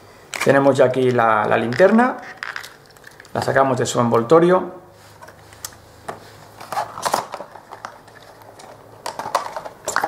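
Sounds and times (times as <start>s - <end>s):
packaging clicks and crinkles: 0.3s - 3.5s, 6.6s - 10.0s.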